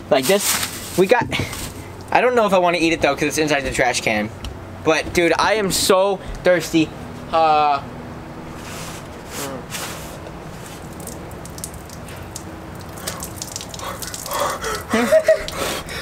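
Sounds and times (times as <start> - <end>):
water pouring and splashing: 10.5 - 15.8.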